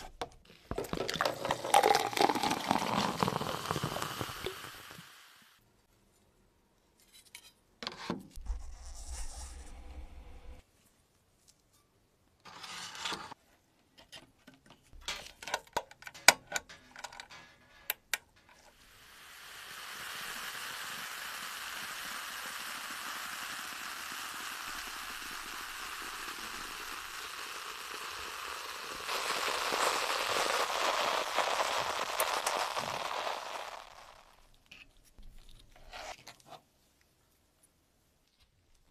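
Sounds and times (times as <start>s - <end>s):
fizzing hiss of bubbling: 0.8s - 5.5s, 18.7s - 34.5s.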